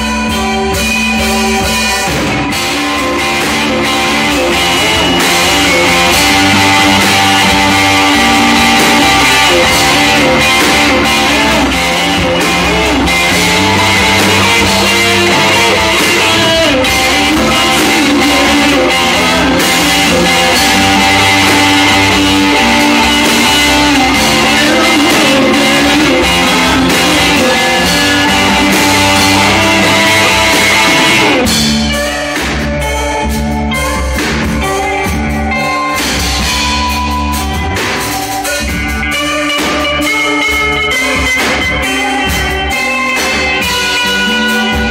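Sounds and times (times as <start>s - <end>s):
live rock band playing: 0.0s - 44.9s.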